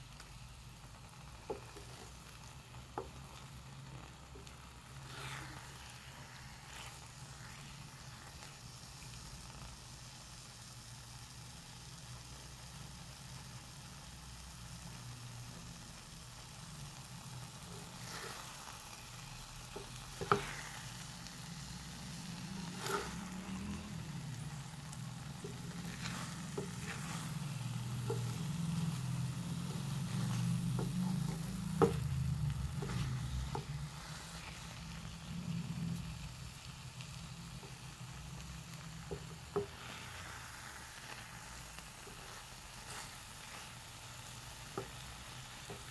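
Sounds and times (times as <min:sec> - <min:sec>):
food sizzling in a frying pan: 0:00.0 - 0:45.9
wooden spatula scraping pan: 0:01.4 - 0:08.5, 0:17.6 - 0:36.0, 0:37.6 - 0:45.9
spatula knocking against pan: 0:30.2 - 0:32.1.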